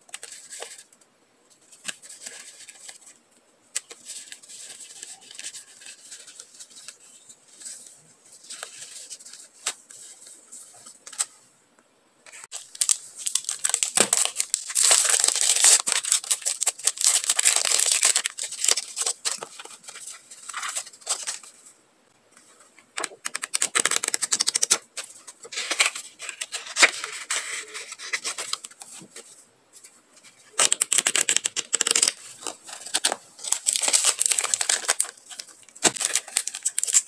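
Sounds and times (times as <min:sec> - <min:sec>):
paper and plastic crinkling: 0:12.4 - 0:21.6, 0:22.4 - 0:37.0.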